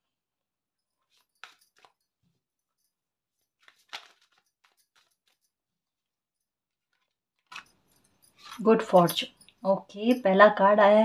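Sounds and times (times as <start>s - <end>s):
cards being shuffled: 3.6s - 5.4s.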